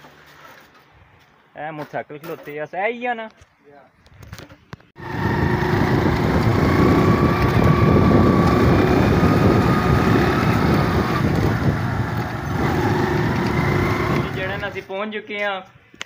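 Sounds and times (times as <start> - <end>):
motorcycle engine running: 5.0 - 14.8
wind buffeting microphone: 5.0 - 14.8.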